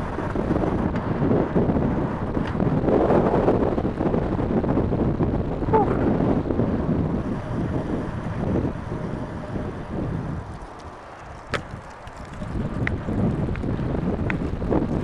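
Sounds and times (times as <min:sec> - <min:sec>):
gusty wind on microphone: 0:00.0 - 0:15.0.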